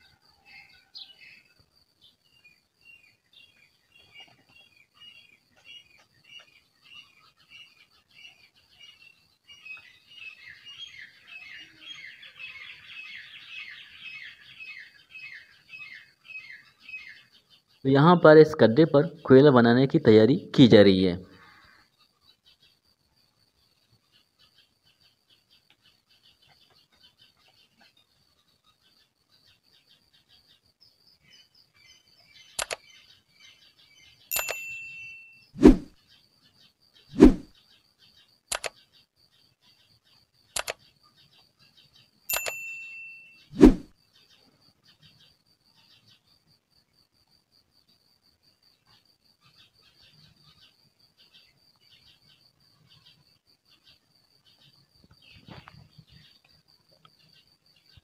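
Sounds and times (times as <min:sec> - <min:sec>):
birds chirping faintly: 0:00.0 - 0:58.0
sharp double click: 0:32.6 - 0:32.8, 0:34.3 - 0:34.7, 0:38.5 - 0:38.8, 0:40.6 - 0:40.8, 0:42.3 - 0:42.6.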